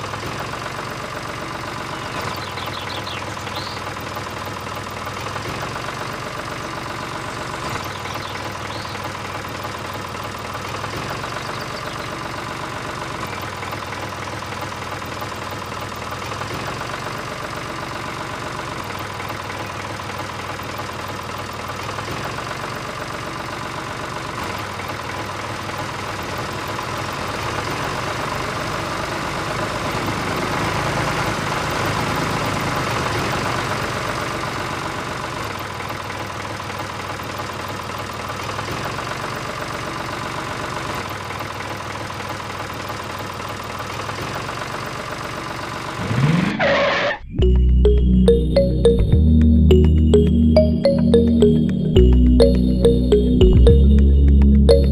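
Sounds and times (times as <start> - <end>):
tractor diesel engine idling: 0.0 - 46.0.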